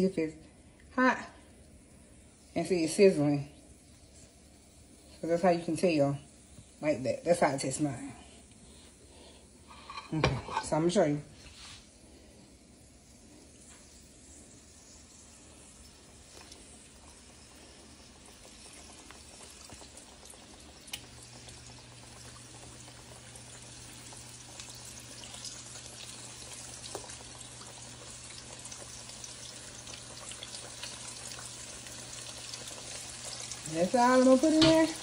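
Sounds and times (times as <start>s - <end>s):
chicken sizzling in hot oil: 8.7s - 35.0s.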